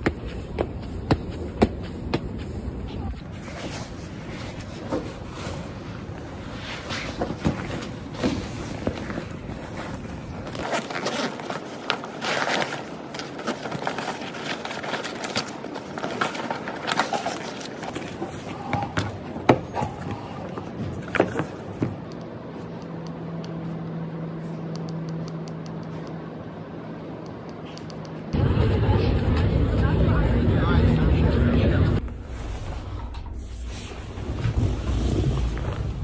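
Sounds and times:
steady low hum: 0:00.0 - 0:10.7, 0:17.7 - 0:36.0
rustling of backpack: 0:03.3 - 0:18.6.

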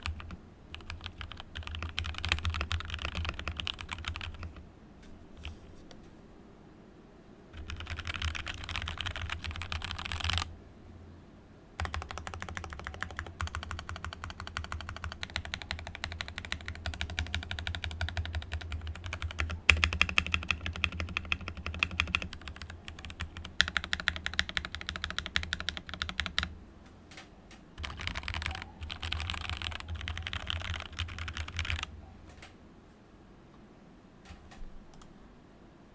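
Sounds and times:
mechanical keyboard typing: 0:00.0 - 0:04.6, 0:07.6 - 0:10.5, 0:11.8 - 0:26.5, 0:27.8 - 0:32.5.

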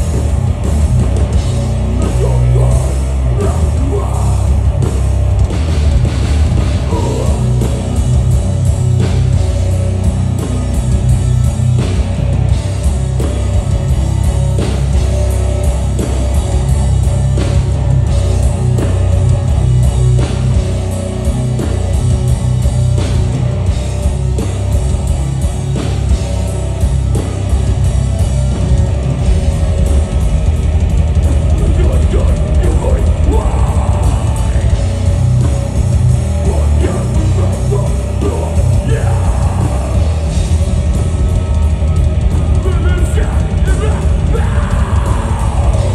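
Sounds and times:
metal band playing live: 0:00.0 - 0:45.9.

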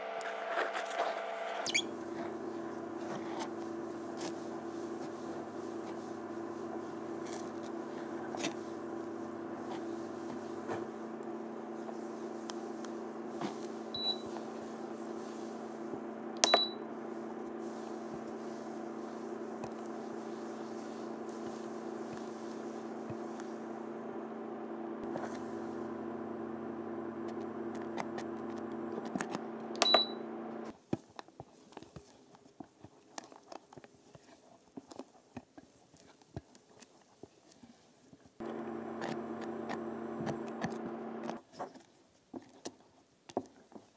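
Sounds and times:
induction cooktop humming: 0:00.0 - 0:30.7, 0:38.4 - 0:41.4.

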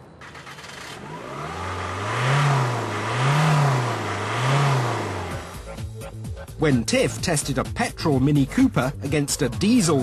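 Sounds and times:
car engine revving: 0:00.2 - 0:05.8.

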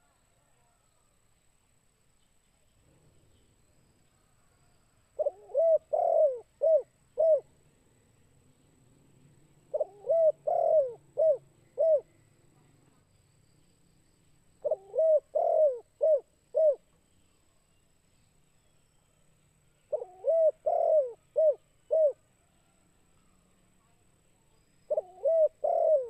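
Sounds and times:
dove cooing: 0:05.2 - 0:07.6, 0:09.7 - 0:12.1, 0:14.6 - 0:16.8, 0:19.9 - 0:22.2, 0:24.9 - 0:26.0.

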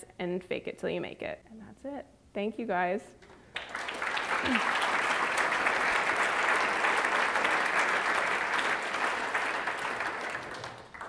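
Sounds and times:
audience applauding: 0:03.5 - 0:11.0.

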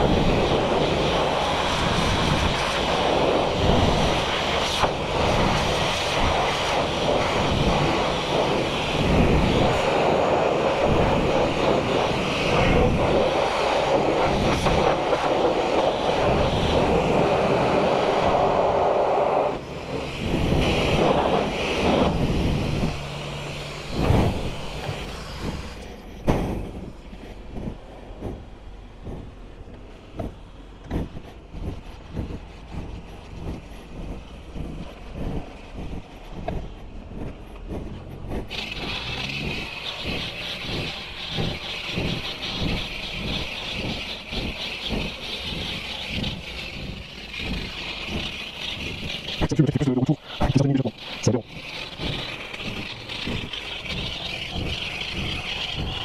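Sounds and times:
pressure washer spraying water: 0:00.0 - 0:25.9, 0:38.4 - 0:56.0.

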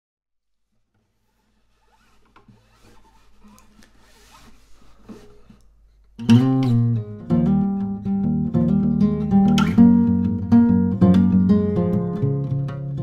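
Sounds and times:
faint rustling: 0:00.6 - 0:06.2
classical guitar playing: 0:06.2 - 0:13.0.

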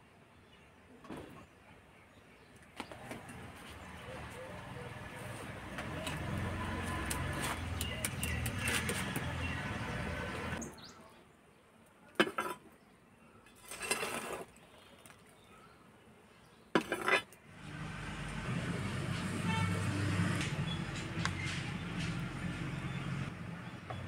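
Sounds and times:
outdoor background hum: 0:00.0 - 0:24.0
metal rod scraping on embers: 0:12.2 - 0:12.6, 0:13.5 - 0:14.6, 0:16.8 - 0:17.4.

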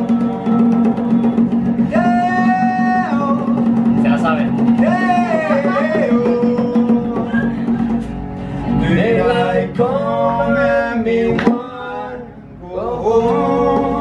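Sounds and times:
man singing: 0:00.0 - 0:03.7, 0:04.8 - 0:07.8, 0:08.8 - 0:14.0
bongos: 0:00.0 - 0:08.8
strummed acoustic guitar: 0:00.0 - 0:14.0.

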